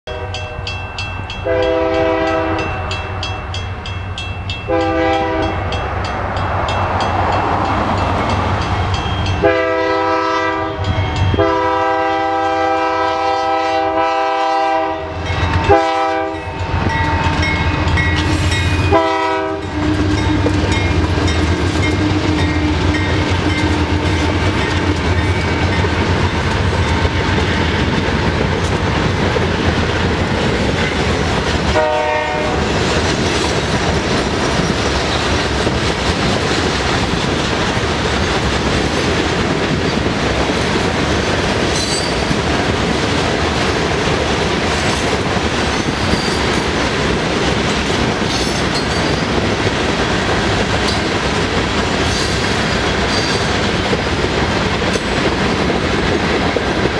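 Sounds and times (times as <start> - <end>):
train air horn blasts: 0.1 - 0.6, 1.4 - 3.6, 4.7 - 5.6, 9.4 - 17.4, 18.2 - 20.7, 31.7 - 32.7
freight cars rolling on rails: 0.3 - 56.9
diesel locomotive rumble: 3.6 - 56.9.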